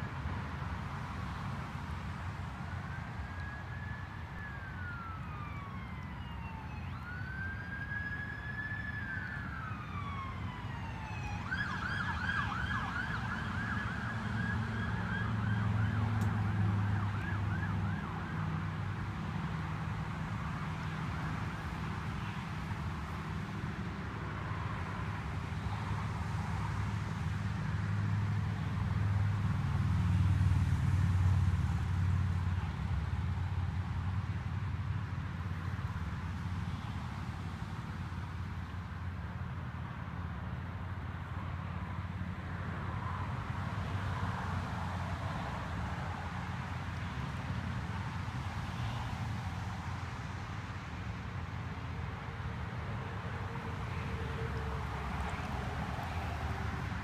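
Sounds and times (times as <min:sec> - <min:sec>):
emergency siren wailing: 0:02.8 - 0:19.1, 0:52.2 - 0:57.0.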